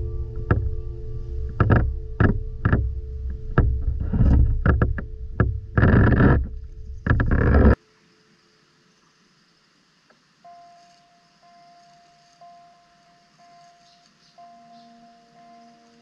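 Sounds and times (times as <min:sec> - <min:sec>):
sharp knocks: 0:00.0 - 0:07.8.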